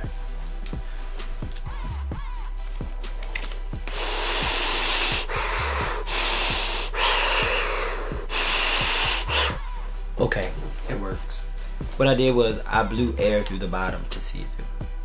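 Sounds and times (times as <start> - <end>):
background music with beat: 0.0 - 15.0
man blowing through shoe: 3.8 - 9.7.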